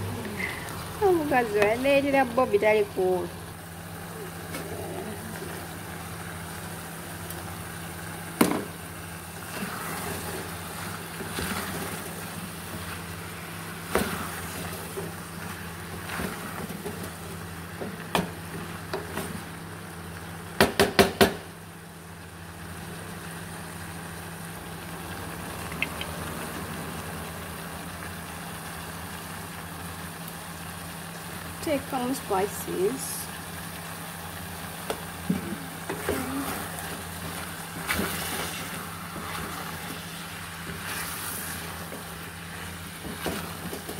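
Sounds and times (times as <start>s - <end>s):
wooden spoon stirring in a pot: 34.9s - 43.9s.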